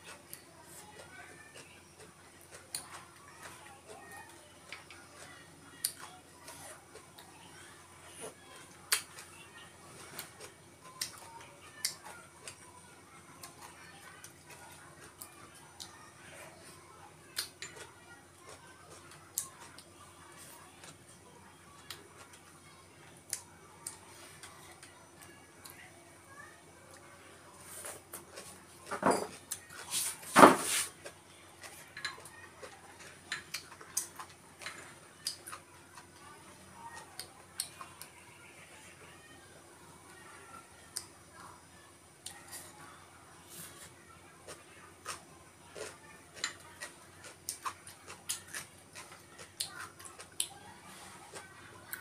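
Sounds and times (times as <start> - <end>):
chewing and mouth smacks: 44.5 - 50.5.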